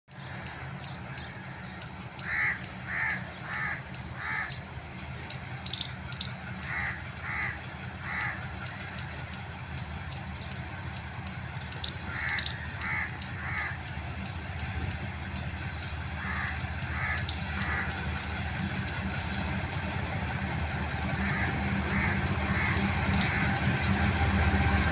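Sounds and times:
low steady rumble: 0.2 - 24.9
crows cawing: 0.4 - 4.7, 5.7 - 24.9
fast high ticks: 5.3 - 7.6, 8.2 - 24.9.

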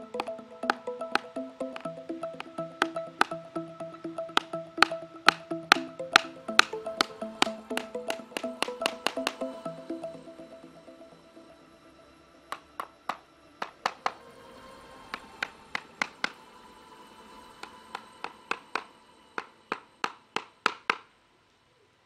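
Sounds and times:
hatchet hammering nails into wood: 19.7 - 21.1.

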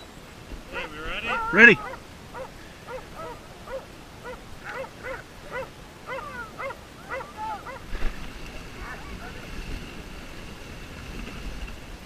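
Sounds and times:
dog yipping: 0.8 - 7.8.

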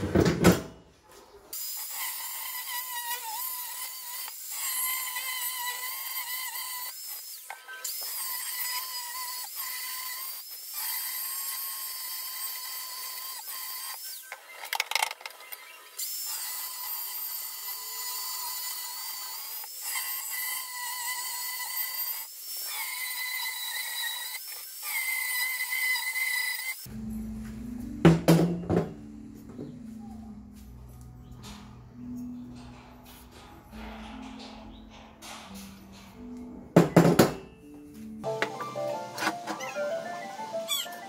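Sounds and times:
angle grinder cutting metal: 1.6 - 26.9.

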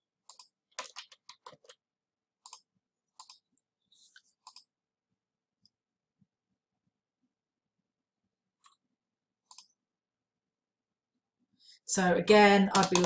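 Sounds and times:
keyboard typing: 0.2 - 1.8, 12.7 - 13.0.

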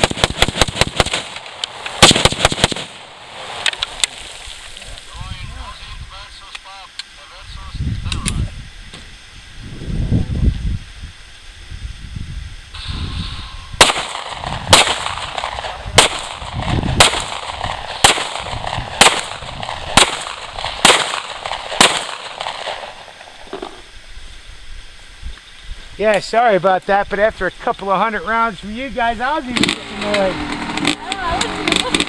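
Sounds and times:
handgun shots with echo: 13.8 - 22.8.

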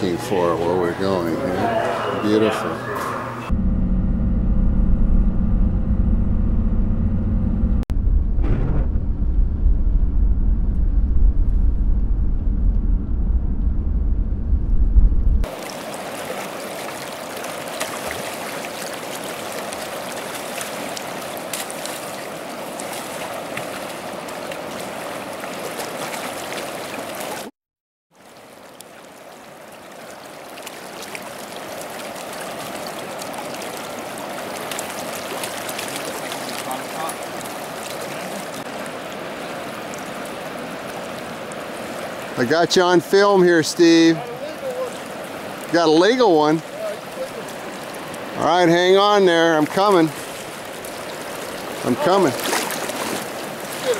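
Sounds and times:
vehicle cabin rumble: 3.5 - 15.5
river flowing: 15.4 - 27.5, 28.2 - 53.9.

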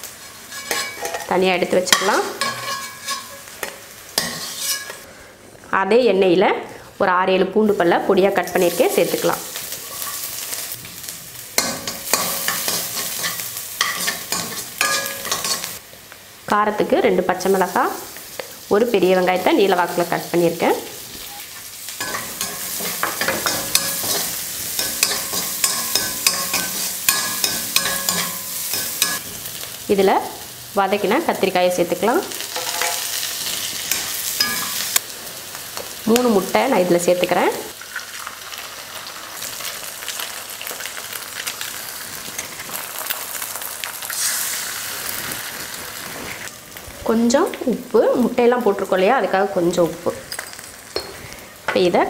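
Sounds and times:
light sizzle of frying: 0.0 - 52.0
spatula scraping steel pan: 0.3 - 1.3, 2.0 - 3.5, 4.2 - 5.0.

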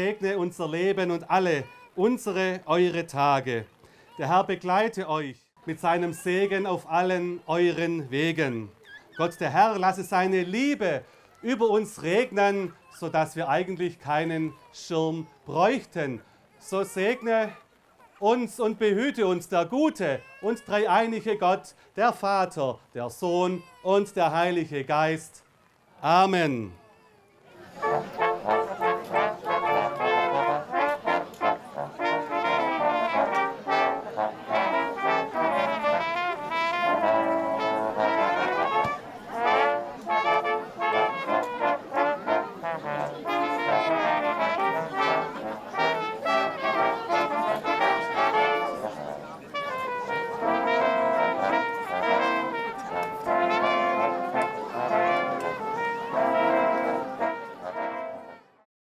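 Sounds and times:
brass ensemble playing: 0.0 - 0.4, 27.6 - 58.6.

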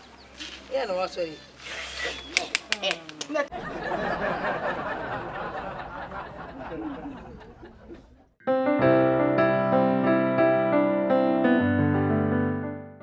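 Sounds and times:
people laughing: 3.4 - 8.3
electric piano chords: 8.4 - 13.0.

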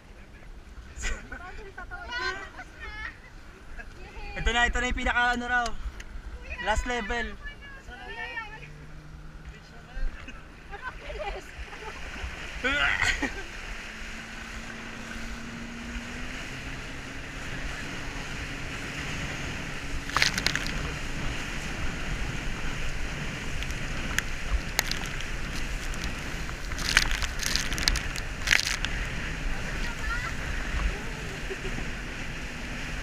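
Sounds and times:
faint boat engine drone: 0.0 - 33.0
water spray splashing: 11.6 - 33.0
wind on microphone: 13.7 - 33.0.

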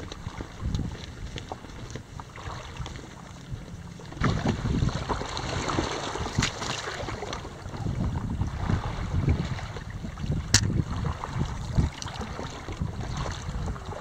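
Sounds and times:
water lapping against paddleboard: 0.0 - 14.0
wind buffeting microphone: 0.0 - 14.0.

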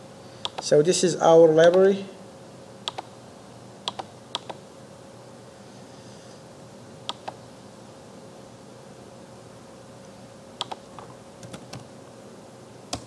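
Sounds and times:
faint electrical hum: 0.0 - 13.0
computer mouse clicks: 0.4 - 0.7, 2.9 - 3.1, 3.9 - 4.6, 7.1 - 7.4, 10.6 - 11.8.

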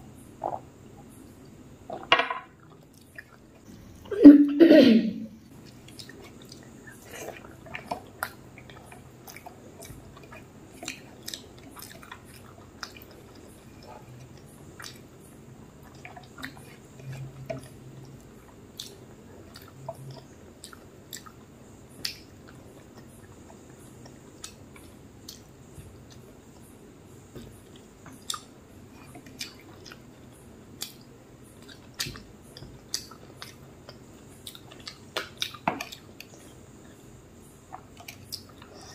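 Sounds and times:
wet chewing with mouth clicks: 5.5 - 26.7, 27.4 - 37.0.

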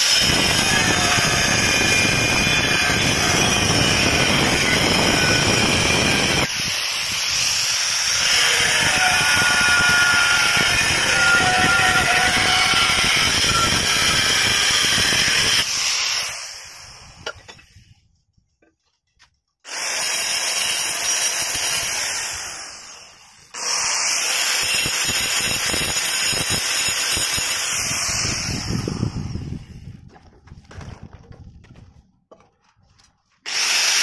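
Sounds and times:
angle grinder cutting tile: 0.0 - 17.6, 19.7 - 29.7, 33.5 - 34.0.

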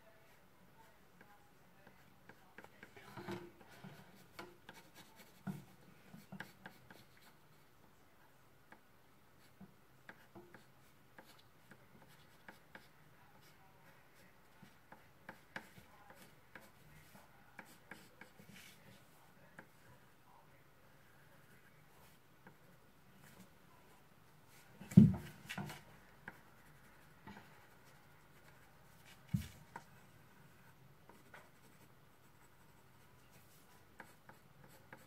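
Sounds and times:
pencil sketching on paper: 3.6 - 7.7, 9.4 - 19.0, 25.7 - 35.0.

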